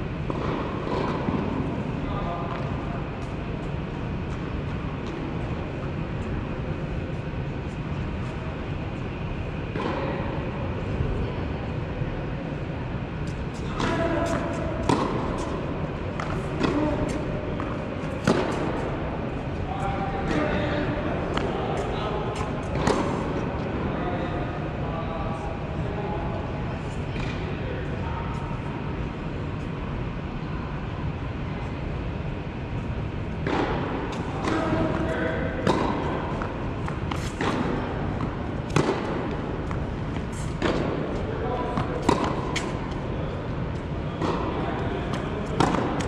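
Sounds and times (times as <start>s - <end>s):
rumbling hall room noise: 0.0s - 46.0s
tennis ball bouncing: 0.2s - 1.7s, 13.2s - 19.2s, 21.3s - 23.4s, 33.4s - 46.0s
racket hitting tennis ball: 0.2s - 1.9s, 13.2s - 19.5s, 20.2s - 23.7s, 33.4s - 46.0s.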